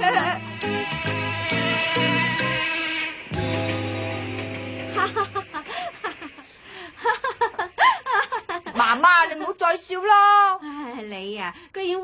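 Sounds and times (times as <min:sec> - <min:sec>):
children laughing: 0:00.0 - 0:00.5, 0:04.9 - 0:08.8
held music chord: 0:00.0 - 0:05.5.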